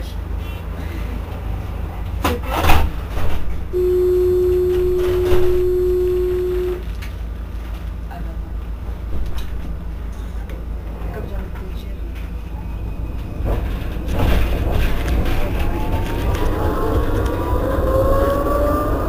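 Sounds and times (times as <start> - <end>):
tram equipment humming: 0.0 - 19.0
steady warning beep: 3.8 - 6.8.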